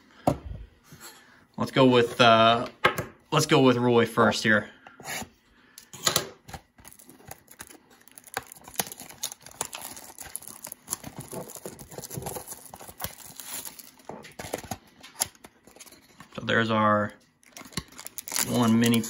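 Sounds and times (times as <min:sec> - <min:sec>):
cellophane wrap crinkling: 0:06.6 - 0:19.0.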